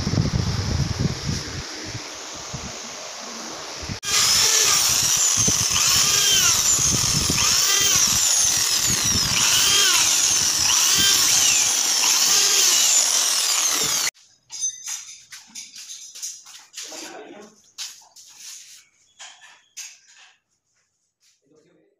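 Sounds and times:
electric drill whine: 0:04.0 - 0:14.1.

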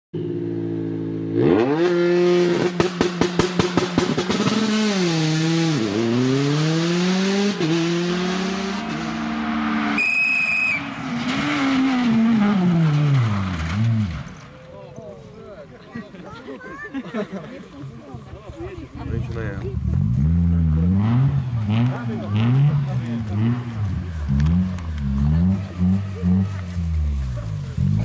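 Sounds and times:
rally car engine revving: 0:01.1 - 0:10.0, 0:10.7 - 0:14.5, 0:19.1 - 0:28.0
exhaust pops and bangs: 0:02.6 - 0:04.9.

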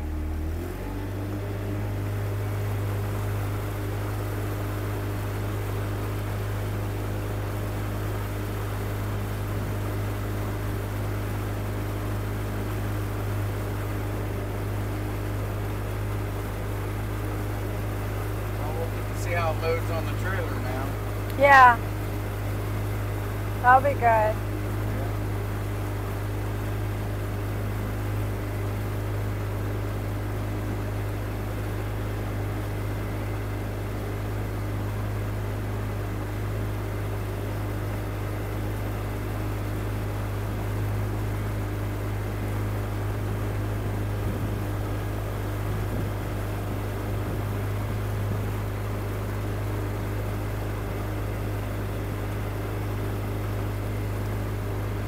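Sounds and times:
motorboat engine droning: 0:00.0 - 0:55.0
water rushing along hull: 0:00.0 - 0:55.0.

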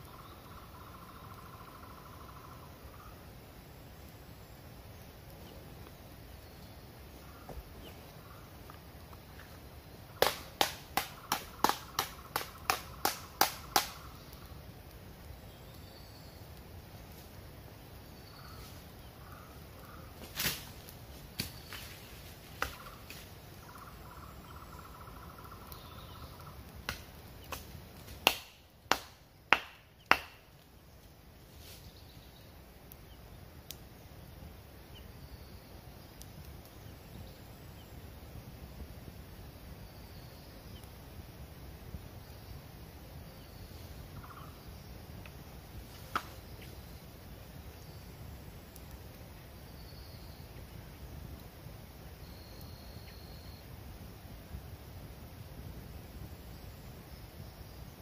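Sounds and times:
tree trunk being struck: 0:10.2 - 0:14.1, 0:26.8 - 0:30.5.

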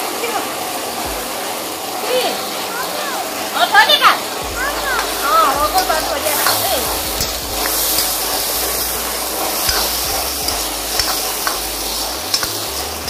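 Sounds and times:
onions sizzling in hot oil: 0:00.0 - 0:13.0
ladle scraping pan: 0:05.8 - 0:13.0.

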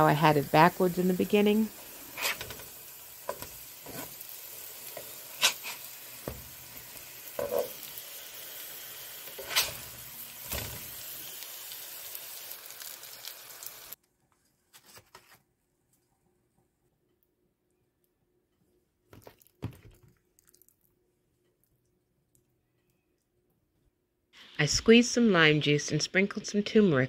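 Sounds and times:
sweet potato sizzling in a frying pan: 0:00.0 - 0:14.0.

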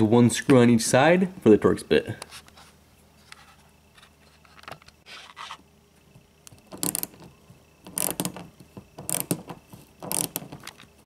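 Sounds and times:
ratchet wrench clicking: 0:06.7 - 0:07.2, 0:07.9 - 0:08.4, 0:09.0 - 0:10.5.

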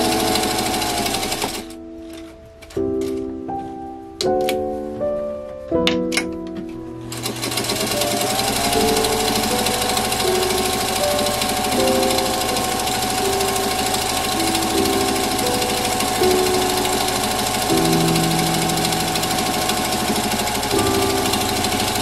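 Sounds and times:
sewing machine stitching: 0:00.0 - 0:01.8, 0:07.1 - 0:22.0
background music: 0:00.0 - 0:22.0.

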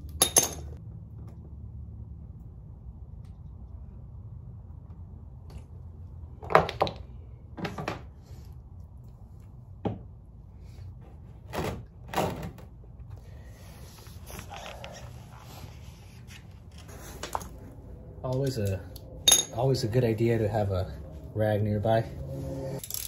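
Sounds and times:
steady low hum: 0:12.9 - 0:23.0.

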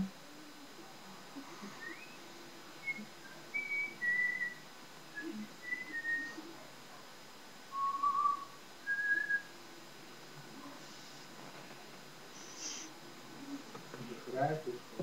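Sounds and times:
woman whistling a tune: 0:02.8 - 0:04.6, 0:05.2 - 0:06.4, 0:07.7 - 0:09.5.

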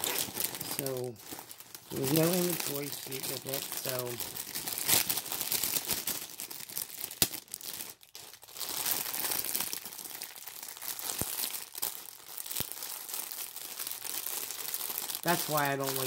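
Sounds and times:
plastic bags crinkling: 0:00.0 - 0:16.0.

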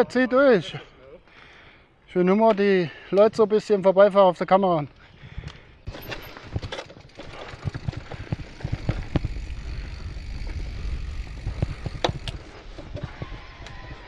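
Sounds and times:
bike tyres crunching on trail: 0:04.9 - 0:14.0.

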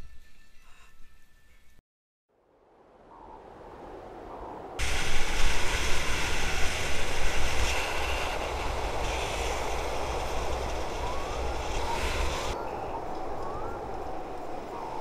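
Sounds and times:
wind rushing over camera: 0:02.8 - 0:15.0.

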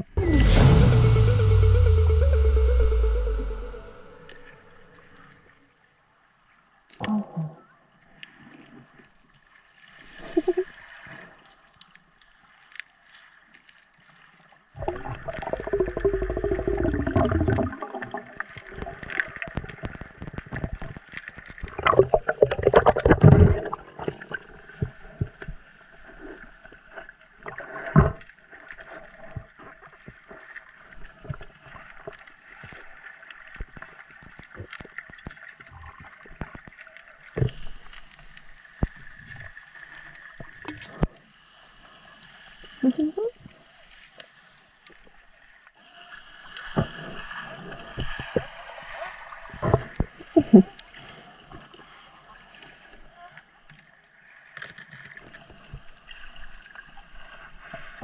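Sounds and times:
underwater bubbling and gurgling: 0:06.9 - 0:40.5, 0:41.9 - 0:58.0.

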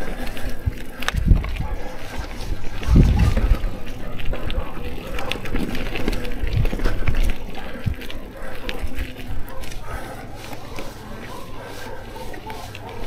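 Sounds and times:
bike tyres crunching on gravel: 0:00.0 - 0:13.0
stones clicking and bike rattling: 0:00.0 - 0:13.0.

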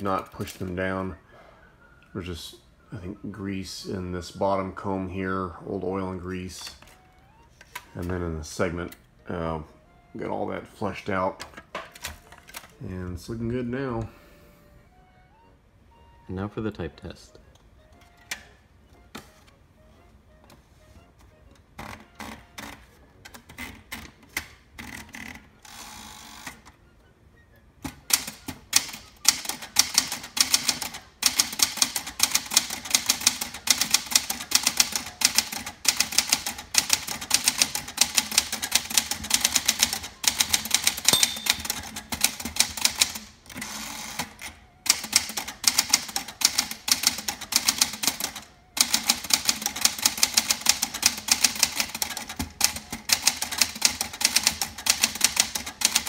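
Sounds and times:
typewriter typing: 0:28.0 - 0:56.0.

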